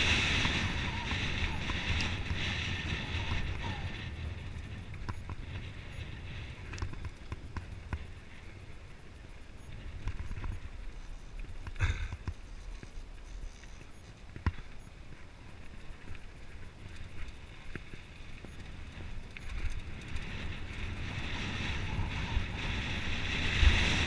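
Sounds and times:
wind hiss: 0.0s - 7.2s, 16.3s - 24.0s
tyres rumbling on dirt: 0.0s - 8.1s
bike clicks and rattles: 0.0s - 24.0s.

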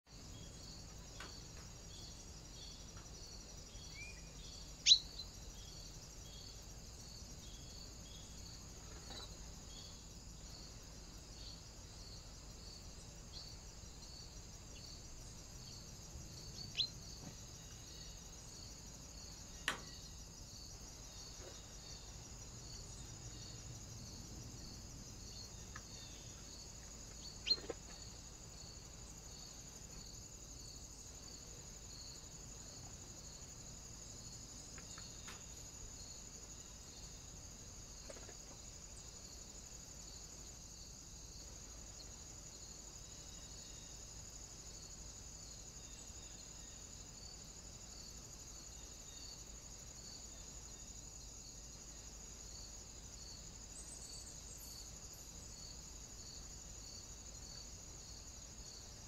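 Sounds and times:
crickets chirring: 0.1s - 59.0s
sharp bird calls: 3.8s - 5.3s.

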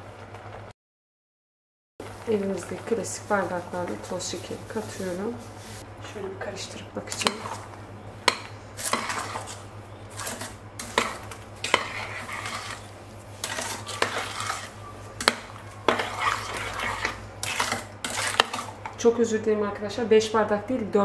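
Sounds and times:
spoon scraping a metal pot: 7.1s - 19.0s.

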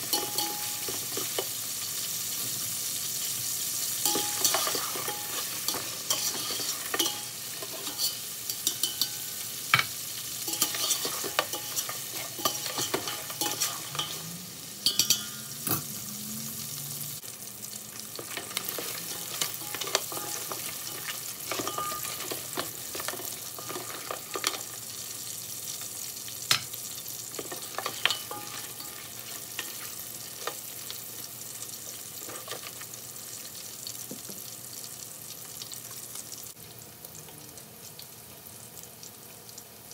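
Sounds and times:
meat sizzling in oil: 0.0s - 39.9s
utensil scraping and knocking pot: 4.1s - 9.2s, 10.5s - 15.8s, 18.2s - 24.7s, 27.4s - 29.8s.

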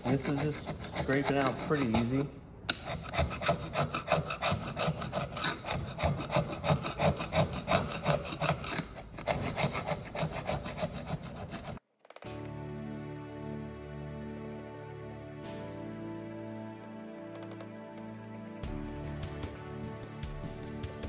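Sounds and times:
screwdriver rasping in metal channel: 0.0s - 11.8s.

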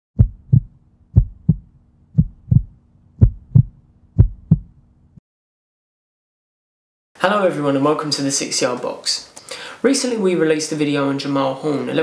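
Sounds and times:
heartbeat thumps: 0.2s - 4.8s
low steady hum: 0.2s - 5.2s.

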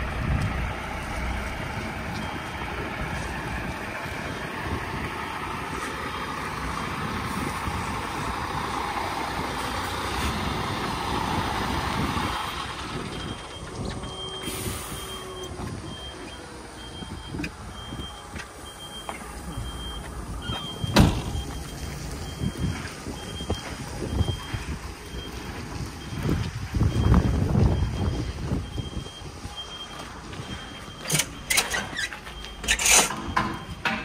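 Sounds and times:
truck engine running: 0.0s - 34.0s
reversing alarm beeping: 2.1s - 3.3s, 12.6s - 34.0s
hiss of air: 14.4s - 15.3s.

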